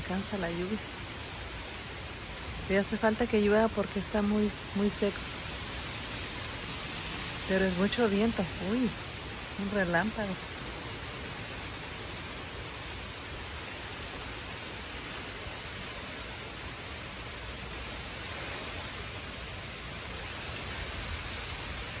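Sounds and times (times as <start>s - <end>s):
storm wind through trees: 0.0s - 22.0s.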